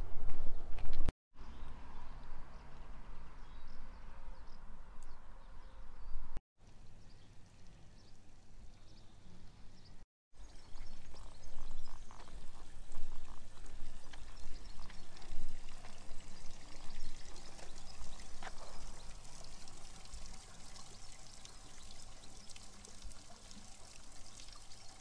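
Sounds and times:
stream splashing over stones: 10.4 - 25.0.

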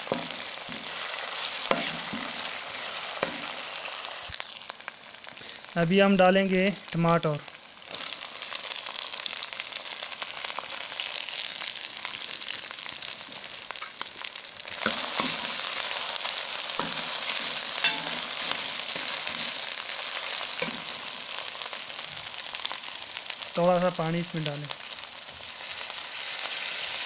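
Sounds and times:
tomatoes sizzling in hot oil: 0.0 - 27.0.

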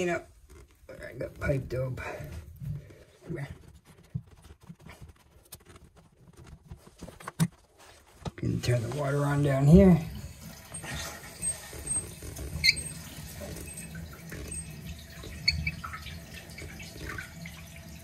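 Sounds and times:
water hissing through pipe: 8.6 - 18.0.

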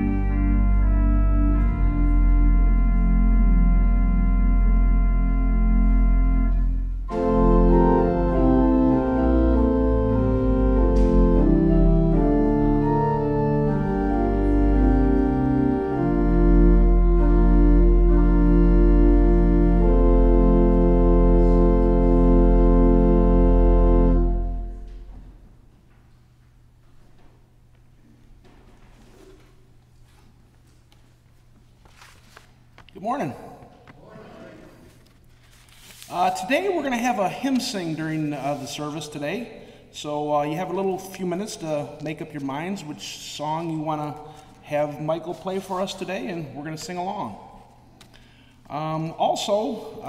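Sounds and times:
organ playing sustained chords: 0.0 - 25.8, 36.1 - 50.0.

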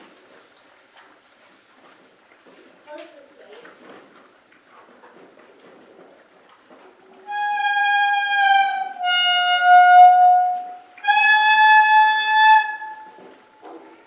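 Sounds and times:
horse calling: 7.1 - 13.5.

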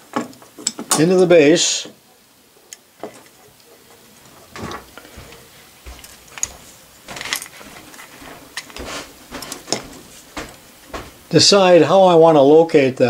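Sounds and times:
small metal parts clicking and scraping: 6.0 - 8.8.

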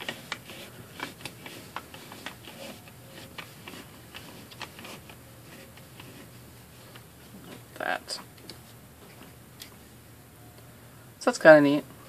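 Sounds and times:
yarn clicking on plastic pegs: 0.0 - 6.3.

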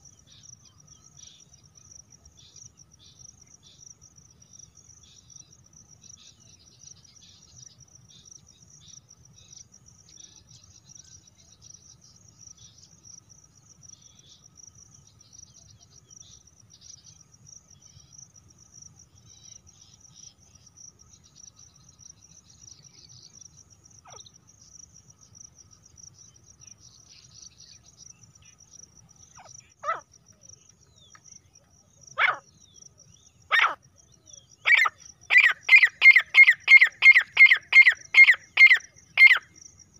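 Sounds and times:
crickets trilling: 0.0 - 39.9
harsh bird calls: 33.5 - 33.8, 34.6 - 39.4.

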